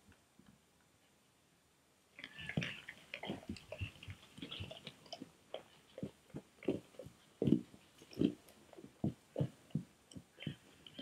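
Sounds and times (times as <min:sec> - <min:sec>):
bear chewing and biting: 0:02.2 - 0:11.0.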